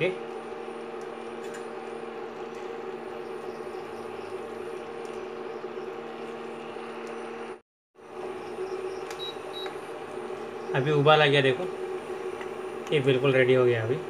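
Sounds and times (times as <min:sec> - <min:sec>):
cooling fan whirring: 0:00.0 - 0:14.0.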